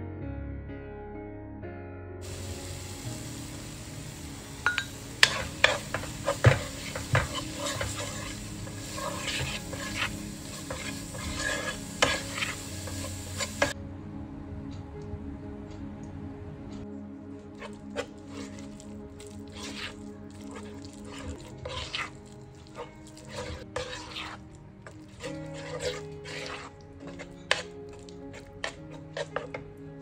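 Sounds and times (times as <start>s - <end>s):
spatula scraping a pan: 2.2s - 13.8s, 17.6s - 29.8s
spices sizzling in hot oil: 2.2s - 13.8s, 17.6s - 29.6s
spatula clicking against pan: 4.7s - 7.9s.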